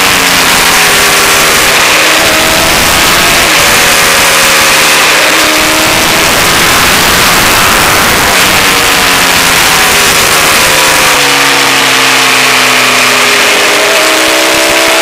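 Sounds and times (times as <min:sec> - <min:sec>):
motorcycle engine revving: 0:00.0 - 0:15.0
wind rush on microphone: 0:05.6 - 0:11.2.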